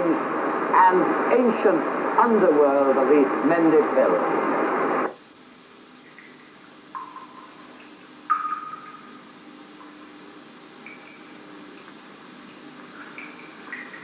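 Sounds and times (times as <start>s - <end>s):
faint steady hum: 0.0s - 14.0s
water drops plinking into pools: 6.1s - 9.2s, 10.8s - 14.0s.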